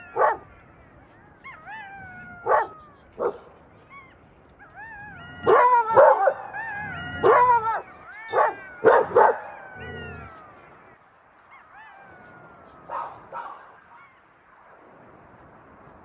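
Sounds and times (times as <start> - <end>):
dogs barking: 0.0 - 0.6, 1.4 - 3.6, 4.6 - 10.5, 11.6 - 14.1
dog whining: 4.7 - 10.4.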